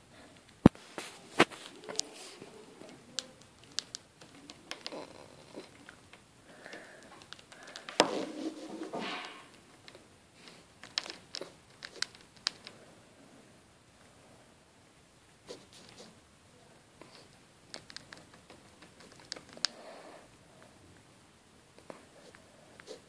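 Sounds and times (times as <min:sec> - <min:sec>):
hamster nibbling crunches: 0:00.7 - 0:06.0, 0:09.8 - 0:12.8, 0:17.0 - 0:19.8.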